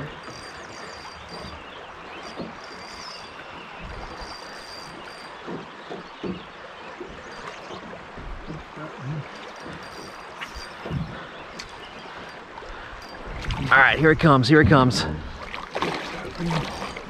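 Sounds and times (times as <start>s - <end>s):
flowing river water: 0.0s - 17.0s
soft knocks: 5.4s - 6.5s.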